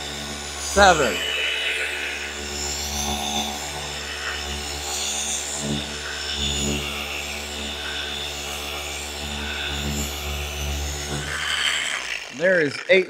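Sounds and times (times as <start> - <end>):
orbital polisher motor whir: 0.0 - 13.0.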